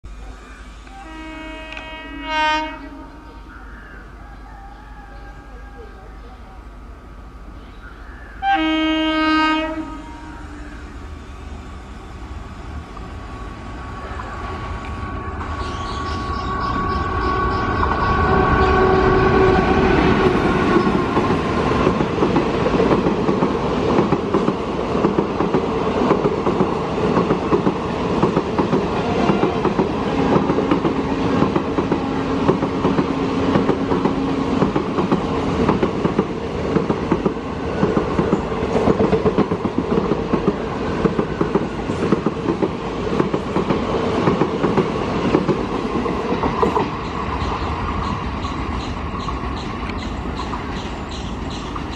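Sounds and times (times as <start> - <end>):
train horn: 0.8 - 3.5, 8.4 - 10.7, 15.6 - 21.1, 28.9 - 31.3
train coaches clickety-clack: 14.0 - 51.9.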